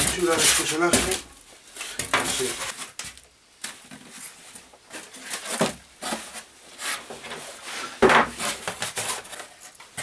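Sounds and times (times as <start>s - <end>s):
foam board scraping and rubbing: 0.0s - 1.2s, 4.0s - 9.7s.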